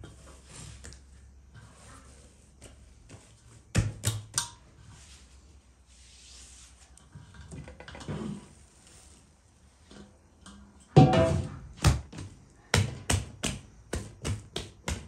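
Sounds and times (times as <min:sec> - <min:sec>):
hands handling dough: 0:00.0 - 0:07.9.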